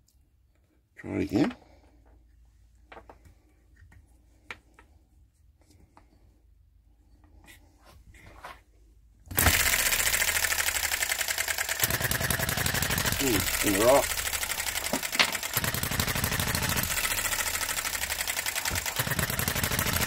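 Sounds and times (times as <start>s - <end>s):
small petrol engine running: 9.3s - 20.0s.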